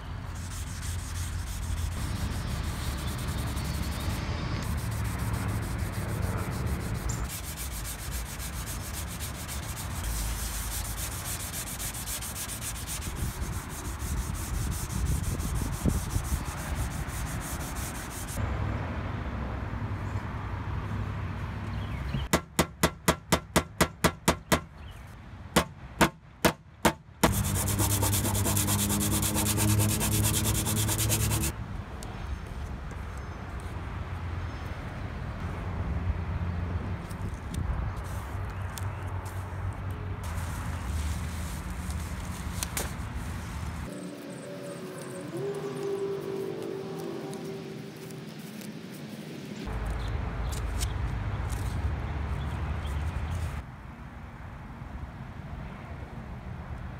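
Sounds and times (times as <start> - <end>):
sandpaper sanding car panel: 0.3 - 18.4, 26.8 - 31.5.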